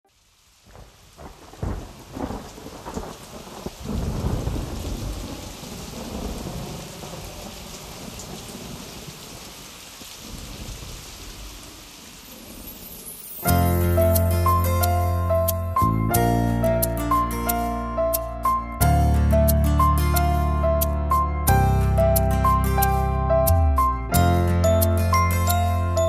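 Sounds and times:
heavy rain: 0:00.0 - 0:26.0
thunder cracks and rumble: 0:00.7 - 0:13.0.

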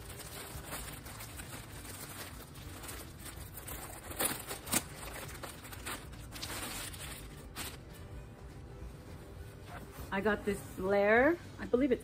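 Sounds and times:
plastic bag crinkling: 0:00.0 - 0:08.0
sharp plastic crackles: 0:00.0 - 0:08.0.

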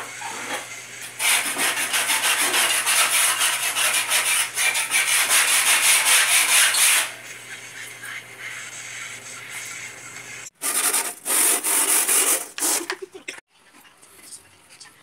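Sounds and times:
hand sanding sheet metal: 0:01.2 - 0:07.2, 0:10.6 - 0:12.9.

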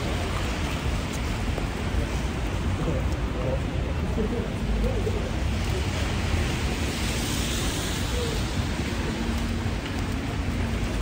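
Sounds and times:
wet traffic: 0:00.0 - 0:11.0
rain hissing: 0:05.2 - 0:11.0.

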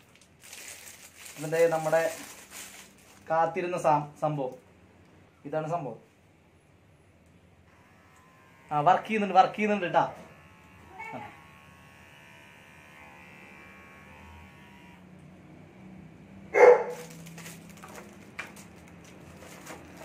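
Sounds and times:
electric hair trimmer humming: 0:07.7 - 0:16.2
dog barking: 0:16.5 - 0:17.0.

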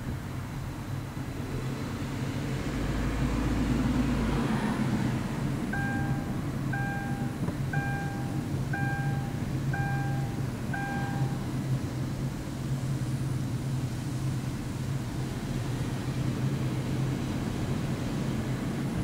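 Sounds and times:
vehicle driving hum: 0:00.0 - 0:19.0
electronic beeps: 0:05.8 - 0:11.4.

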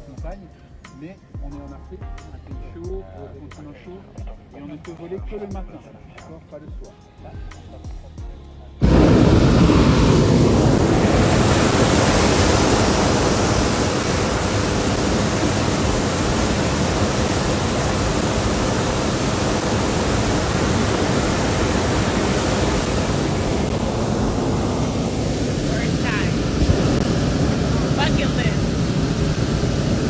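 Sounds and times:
propane burner rushing: 0:08.8 - 0:30.0.

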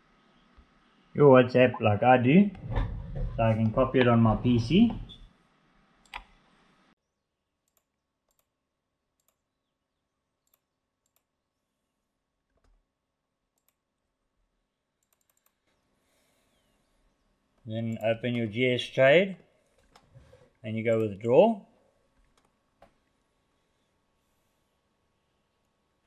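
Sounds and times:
faint clicks: 0:06.0 - 0:06.4, 0:07.6 - 0:08.5, 0:10.4 - 0:11.3, 0:13.6 - 0:13.8, 0:15.0 - 0:16.6, 0:22.2 - 0:23.2.

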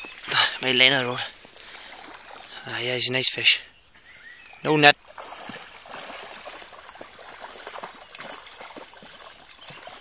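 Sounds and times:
fish splashing in water: 0:01.6 - 0:02.7, 0:05.0 - 0:10.0.

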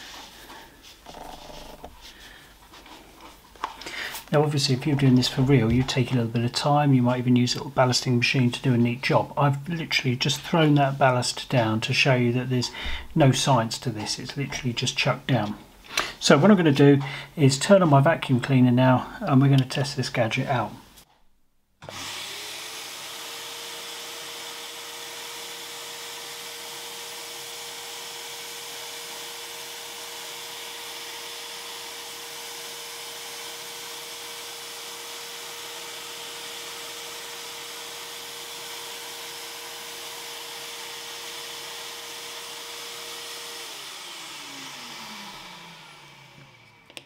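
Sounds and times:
vacuum cleaner whine: 0:21.8 - 0:47.0.

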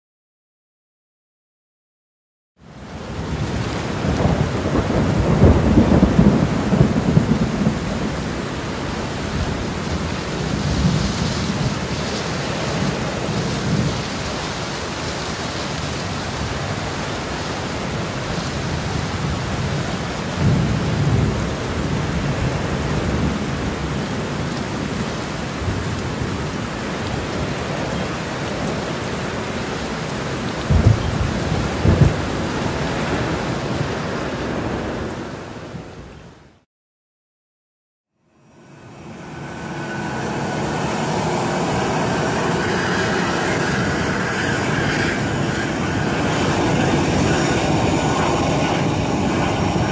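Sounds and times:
heavy rain: 0:02.6 - 0:36.7, 0:38.4 - 0:49.9
low rolls of thunder: 0:03.0 - 0:14.6, 0:18.0 - 0:29.4, 0:30.4 - 0:35.9, 0:39.2 - 0:49.9
sharp thunder cracks: 0:04.1 - 0:08.1, 0:30.6 - 0:33.4.

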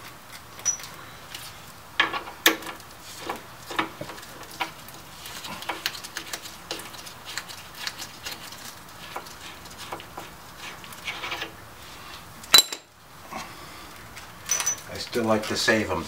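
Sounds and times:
light metal clinks and taps: 0:14.5 - 0:14.9.

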